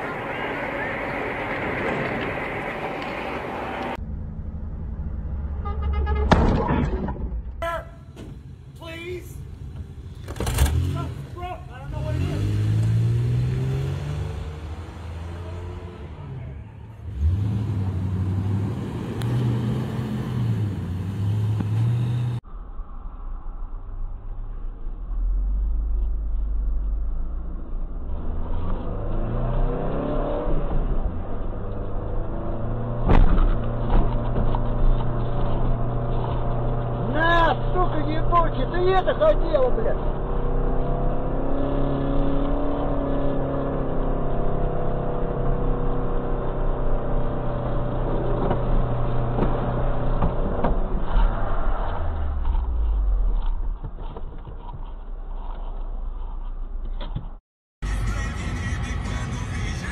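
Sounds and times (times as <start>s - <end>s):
vehicle engine droning and revving: 0.0s - 6.4s, 9.5s - 59.9s
truck engine running: 57.8s - 59.9s.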